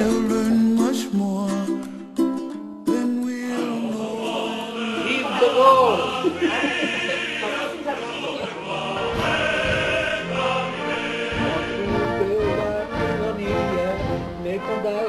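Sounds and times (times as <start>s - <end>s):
musical accompaniment: 0.0s - 15.0s
choir singing sustained notes: 3.8s - 14.1s.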